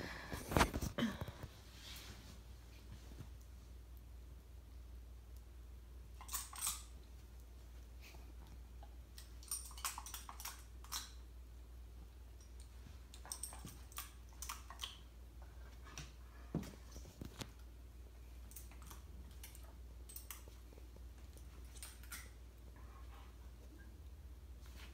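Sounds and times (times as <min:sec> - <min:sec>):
metal dog tags clinking: 0:06.2 - 0:06.9, 0:09.2 - 0:11.2, 0:12.4 - 0:14.9, 0:18.5 - 0:20.6.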